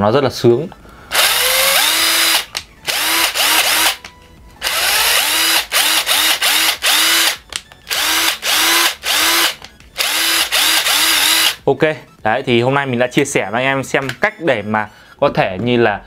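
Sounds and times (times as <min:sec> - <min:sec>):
impact driver motor whining: 0:01.1 - 0:11.6.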